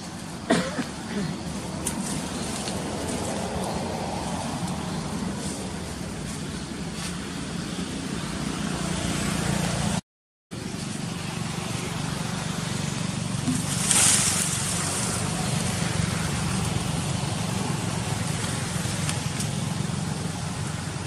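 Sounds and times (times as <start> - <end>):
outdoor background noise: 0.0 - 21.0
low motor hum: 10.6 - 21.0.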